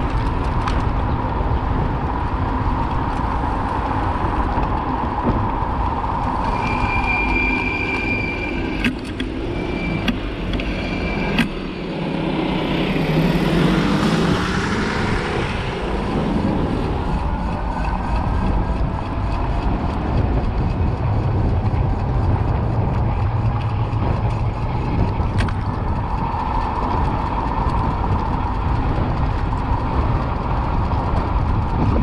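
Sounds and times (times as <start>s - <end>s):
street traffic: 0.0s - 32.0s
wind rumble on microphone: 0.0s - 32.0s
high thin squeal: 6.4s - 11.9s
vehicle passing close: 11.5s - 32.0s.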